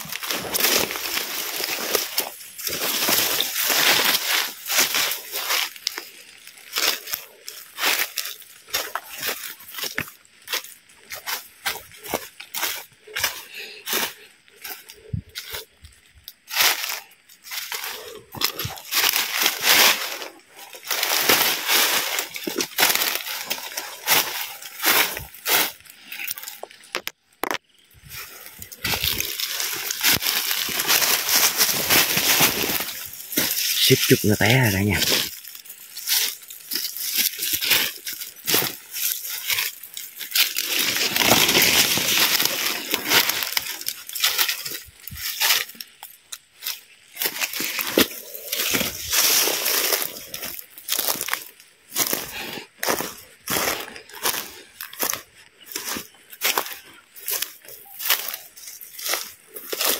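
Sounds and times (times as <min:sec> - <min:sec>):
brush rustling: 0:00.0 - 0:59.9
footsteps on dry leaves: 0:00.0 - 0:59.9.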